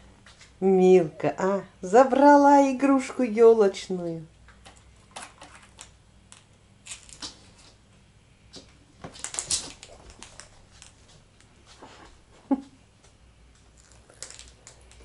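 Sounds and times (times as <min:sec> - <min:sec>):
cat paws scampering: 0:09.0 - 0:12.2
ornament skittering on floor: 0:13.8 - 0:15.0.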